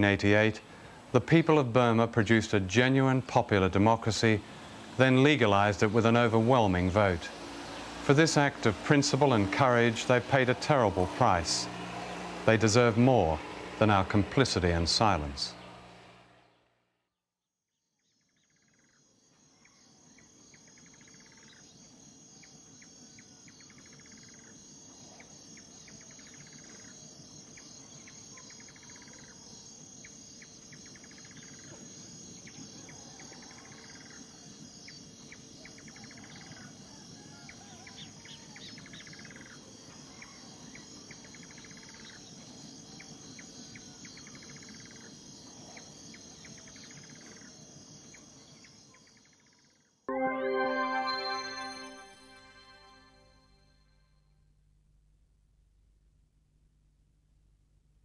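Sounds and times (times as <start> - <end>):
insect pulsed chirp: 18.0 - 49.9
insects trilling: 18.3 - 49.9.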